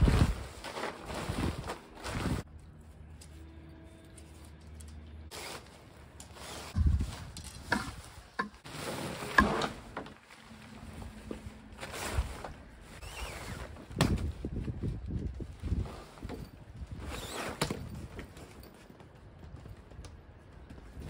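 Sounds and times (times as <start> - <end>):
nylon tent fabric rustling: 0.0 - 2.5, 5.3 - 18.5.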